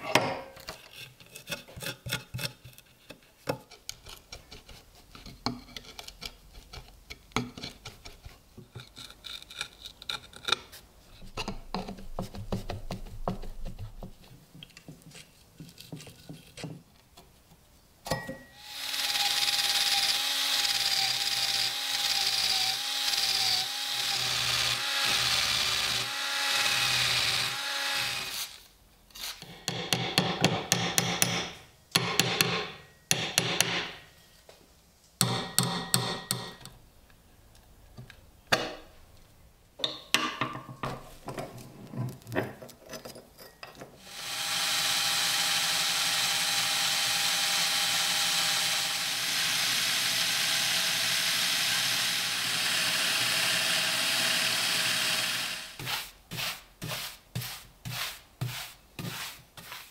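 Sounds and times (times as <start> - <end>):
hand tool scraping wood: 52.5 - 59.9.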